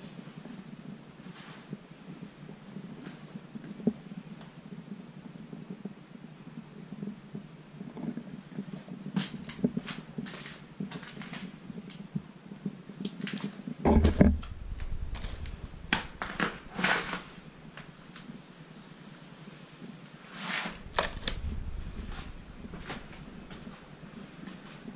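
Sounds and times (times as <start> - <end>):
heavy thump: 13.8 - 18.2, 20.8 - 23.9
sharp knocks and creaks: 13.8 - 18.3, 20.7 - 23.9
low steady hum: 13.8 - 19.3, 20.7 - 24.9
wooden door knocks and scrapes: 13.9 - 17.9
low rumble: 13.9 - 18.4, 20.7 - 24.8.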